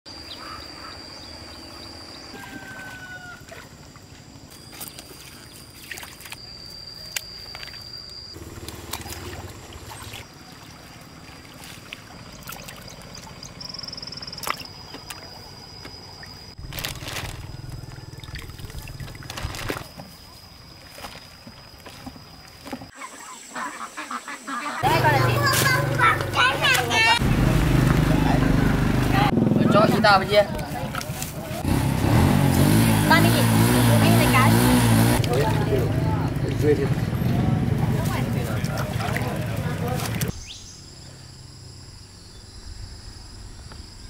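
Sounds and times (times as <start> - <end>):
water splashing and trickling: 2.4 - 6.4, 7.4 - 23.2, 37.5 - 40.4.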